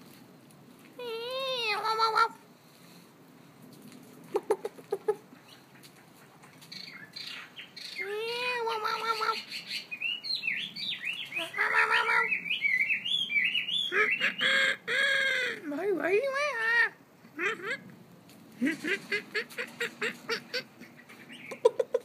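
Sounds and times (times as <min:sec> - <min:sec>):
songbirds calling and singing: 0:05.4 - 0:15.4, 0:19.7 - 0:22.0.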